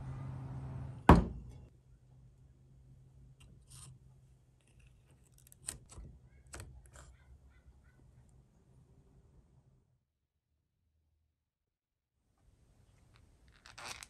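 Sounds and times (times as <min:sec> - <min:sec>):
loud sharp knock: 0:01.1 - 0:01.5.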